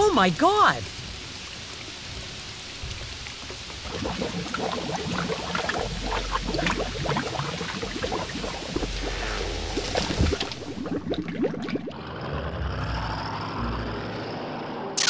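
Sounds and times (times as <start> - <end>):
steady rain hiss: 0.0 - 10.8
muddy water and sand splashing: 0.0 - 12.0.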